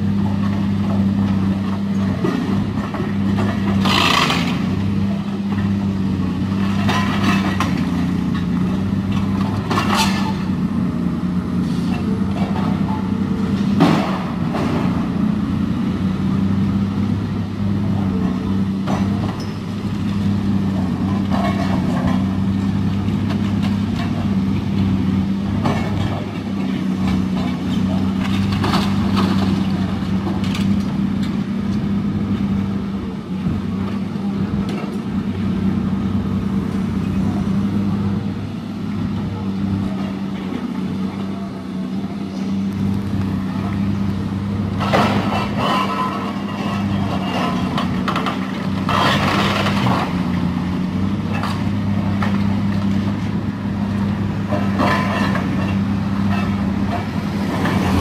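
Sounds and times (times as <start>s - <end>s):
diesel engine running: 0.0s - 58.0s
concrete cracking and crashing: 44.8s - 50.6s.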